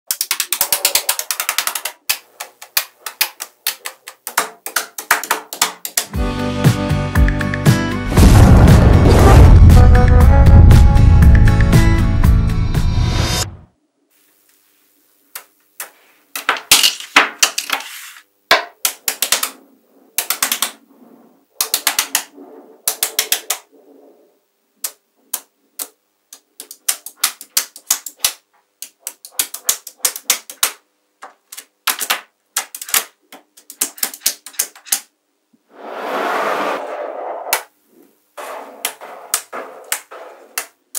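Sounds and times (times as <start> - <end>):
magnetic balls clicking: 0.1 - 6.2, 18.5 - 20.8, 21.6 - 23.7, 24.8 - 35.1.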